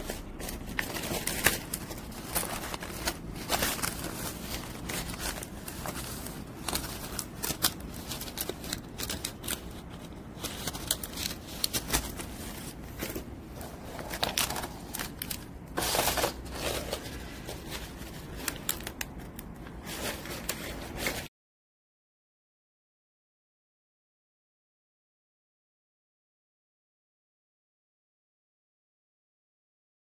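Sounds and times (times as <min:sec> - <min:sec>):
parchment paper rustling: 0:00.0 - 0:21.3.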